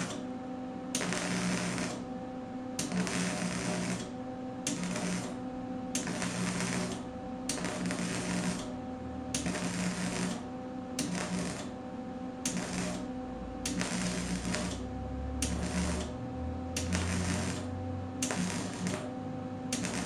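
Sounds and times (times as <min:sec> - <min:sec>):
welding arc crackling: 0:00.0 - 0:00.2, 0:01.0 - 0:02.1, 0:02.8 - 0:04.1, 0:04.7 - 0:05.4, 0:06.0 - 0:11.8, 0:12.4 - 0:16.2, 0:16.8 - 0:19.1, 0:19.7 - 0:20.0.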